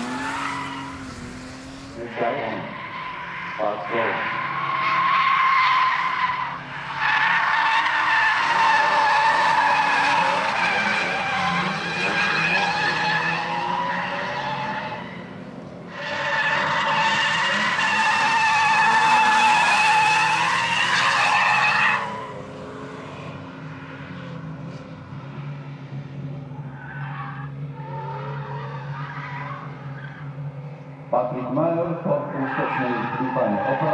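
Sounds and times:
car engine running hard: 0.0s - 4.8s, 7.8s - 16.0s, 16.6s - 33.9s
tyres squealing: 0.0s - 15.2s.

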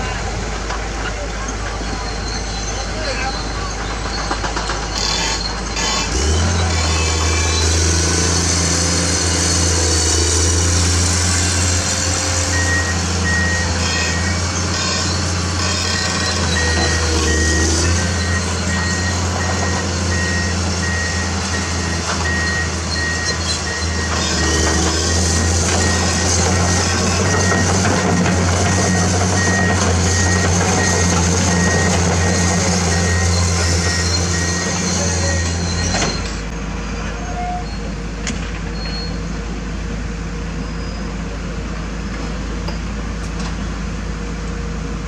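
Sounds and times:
excavator diesel engine running: 0.0s - 45.0s
travel alarm short high beeps: 12.5s - 14.4s, 15.9s - 24.7s.

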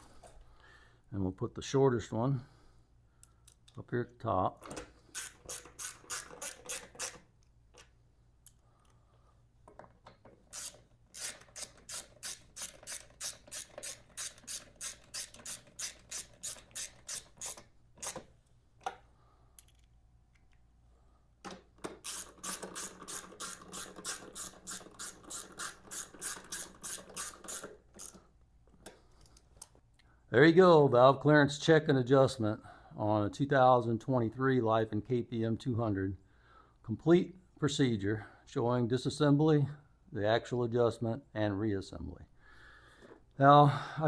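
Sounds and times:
ratchet wrench clicking: 5.1s - 7.2s, 10.5s - 18.2s, 22.0s - 28.2s.

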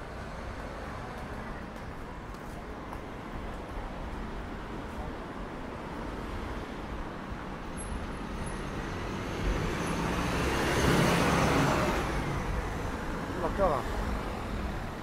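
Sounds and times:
street traffic: 0.0s - 15.0s
vehicle passing close by: 8.9s - 13.3s.

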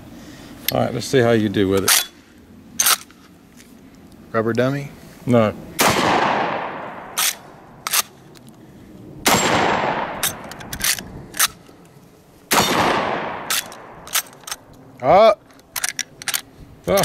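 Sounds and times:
metallic clacks of gun lever: 1.8s - 2.2s, 2.8s - 3.7s, 7.2s - 8.6s, 10.2s - 12.0s, 13.4s - 14.8s, 15.4s - 17.0s
shotgun shots with echo: 5.8s - 7.4s, 9.2s - 10.4s, 12.5s - 14.0s.

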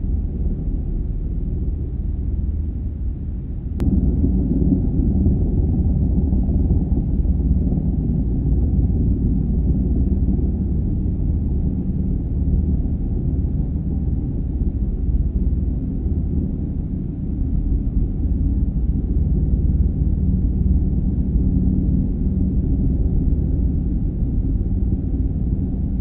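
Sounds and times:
helicopter hovering: 3.8s - 17.4s.

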